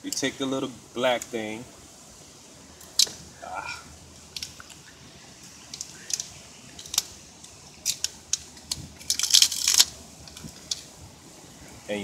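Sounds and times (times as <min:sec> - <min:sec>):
light clicks and rustles: 0:04.3 - 0:11.0.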